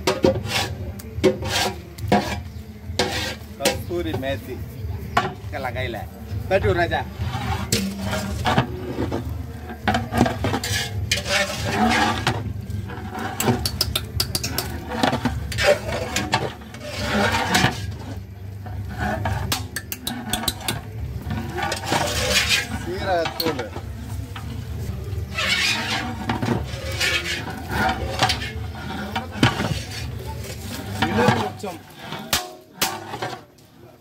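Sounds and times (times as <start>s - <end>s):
ladle scraping metal pot: 0.0s - 34.0s.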